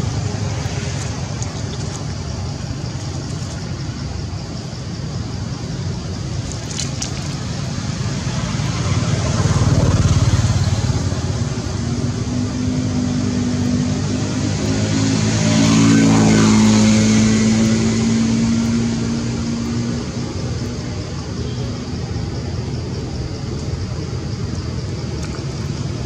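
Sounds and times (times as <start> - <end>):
engine hum: 0.0 - 26.0
traffic rumble: 0.0 - 26.0
vehicle passing: 6.7 - 23.5.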